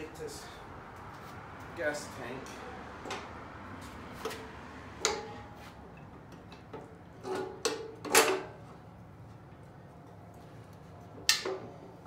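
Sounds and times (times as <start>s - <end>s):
metal clanks and knocks: 5.0s - 8.6s.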